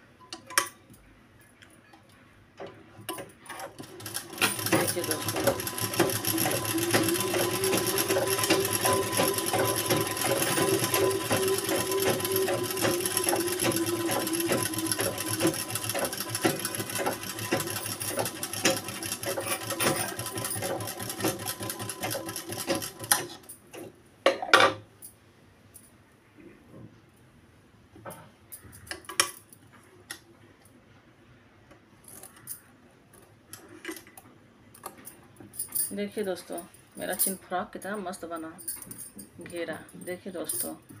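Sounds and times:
sewing machine stitching: 3.5s - 23.5s.

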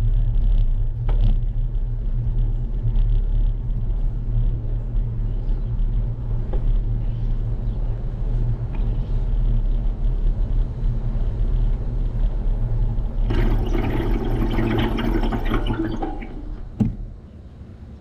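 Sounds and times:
knock: 16.8s - 17.0s.

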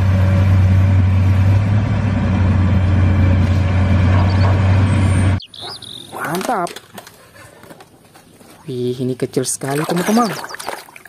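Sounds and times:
excavator diesel engine running: 0.0s - 6.0s.

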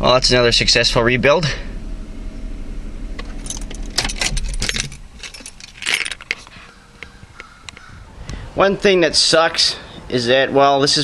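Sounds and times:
car engine idling: 0.0s - 10.3s
key ring jangling: 3.3s - 6.4s.

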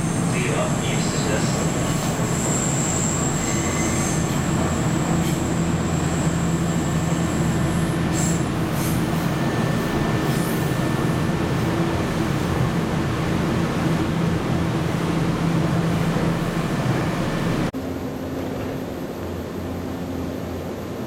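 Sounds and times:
high wheel squeal: 0.0s - 11.3s
train wheels rumbling on rail: 0.0s - 21.0s.

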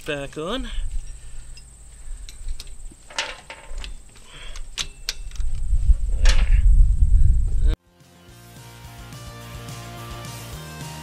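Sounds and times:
metal clinks: 0.3s - 5.6s
low rumble: 5.3s - 7.8s.

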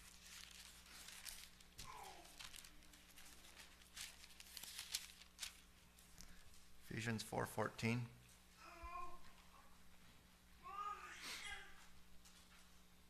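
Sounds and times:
pages rustling and crinkling: 0.0s - 6.5s
low electrical hum: 0.0s - 13.0s.

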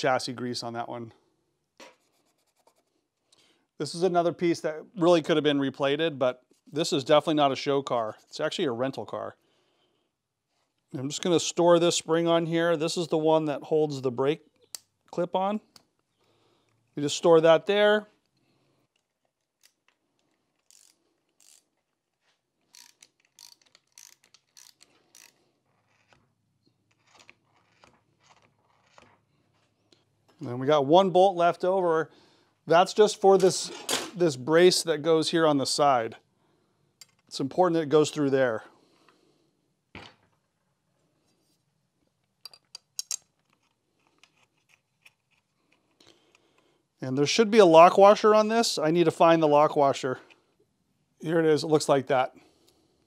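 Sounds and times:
metal clicks and taps: 42.4s - 45.4s.

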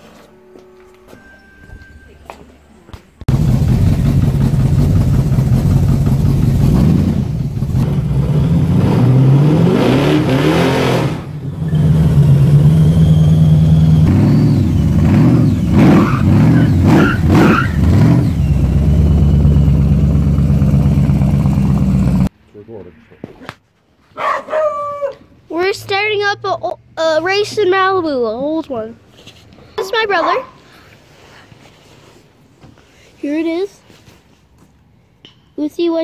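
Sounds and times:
car engine revving and idling: 3.3s - 22.3s.

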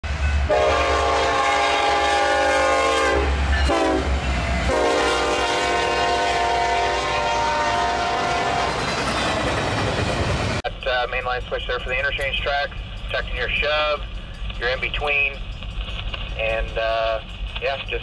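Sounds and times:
locomotive air horn blasts: 0.5s - 8.8s.

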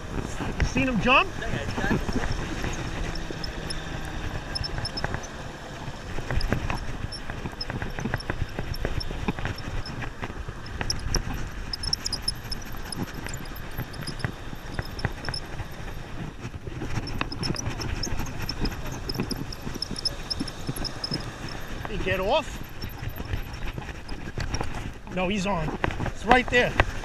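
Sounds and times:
wind noise: 0.0s - 27.0s
fishing reel clicking: 10.6s - 15.8s, 17.0s - 24.0s.

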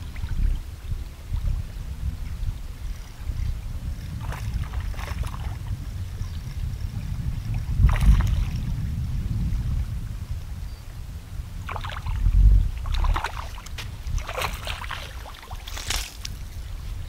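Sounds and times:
wind buffeting microphone: 0.0s - 17.0s
brief crackly sounds: 15.6s - 16.4s.

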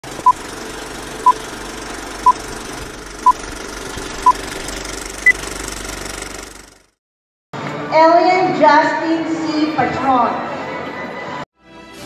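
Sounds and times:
film projector running: 0.0s - 7.0s.

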